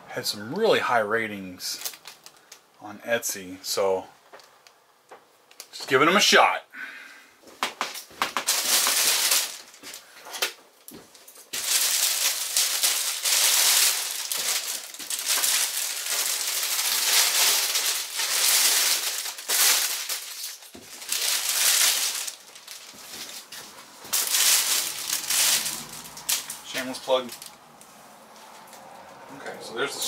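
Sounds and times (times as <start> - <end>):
plastic wrapping crinkling: 1.7 - 2.7, 7.6 - 28.7.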